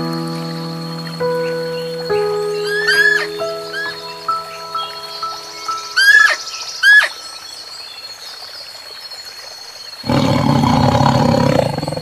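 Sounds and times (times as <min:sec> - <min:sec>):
outdoor hiss: 0:00.0 - 0:12.0
deep animal roar: 0:10.0 - 0:12.0.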